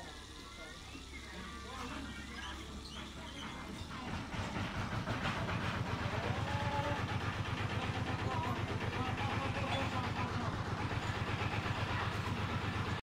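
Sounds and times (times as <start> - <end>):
fountain water trickling: 0.0 - 3.4.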